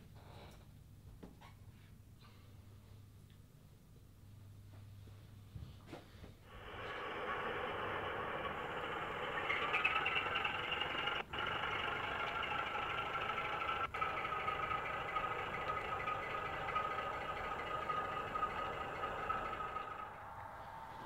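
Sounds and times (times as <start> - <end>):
model train running clatter: 6.5 - 20.2
model train whine: 6.5 - 21.0.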